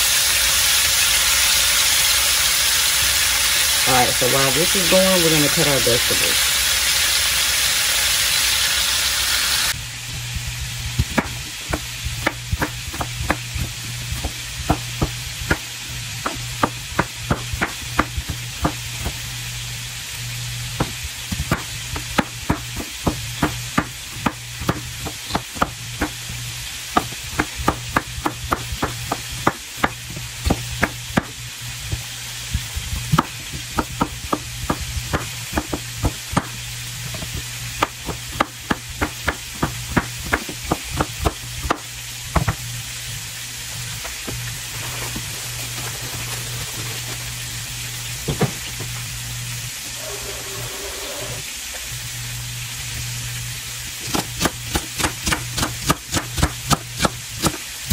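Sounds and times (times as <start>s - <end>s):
meat searing in hot oil: 0.0s - 57.9s
steady low hum: 9.7s - 57.9s
knife chopping on wooden board: 11.1s - 19.2s, 20.8s - 26.2s, 26.9s - 32.0s, 33.0s - 42.6s, 54.0s - 57.6s.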